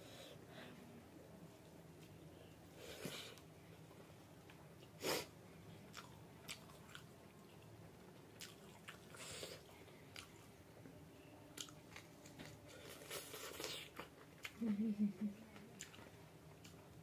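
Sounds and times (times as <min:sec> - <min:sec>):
person chewing food: 0:05.8 - 0:10.6, 0:11.5 - 0:14.6, 0:15.8 - 0:17.0.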